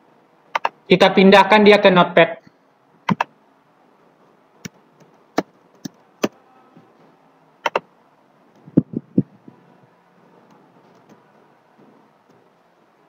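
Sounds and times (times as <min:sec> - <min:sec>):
computer keyboard clicks: 0:00.5 - 0:00.7, 0:07.6 - 0:07.8
computer mouse clicks: 0:00.5 - 0:00.8, 0:03.1 - 0:03.3, 0:07.6 - 0:07.8.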